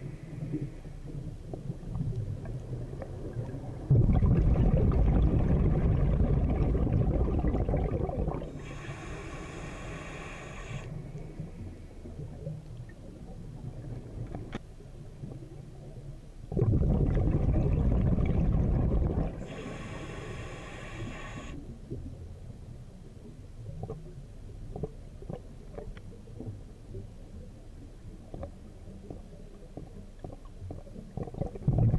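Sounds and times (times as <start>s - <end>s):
water noise: 0.0s - 22.3s, 23.7s - 31.9s
exhaled bubbles rushing underwater: 1.6s - 10.8s, 16.5s - 21.5s, 30.2s - 31.9s.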